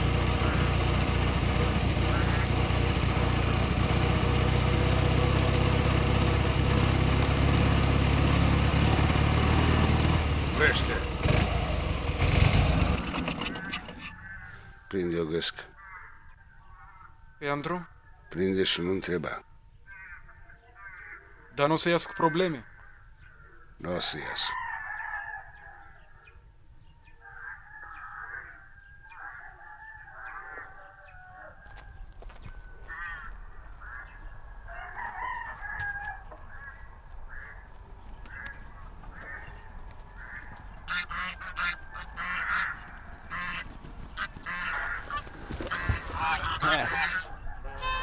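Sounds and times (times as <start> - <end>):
geese honking: 0.0 - 6.0, 12.8 - 17.1, 27.2 - 48.0.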